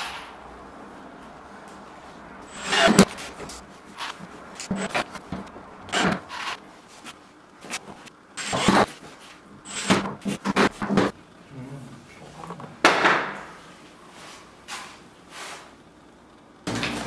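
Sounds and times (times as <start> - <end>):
tools knocking and scraping: 2.5 - 6.6.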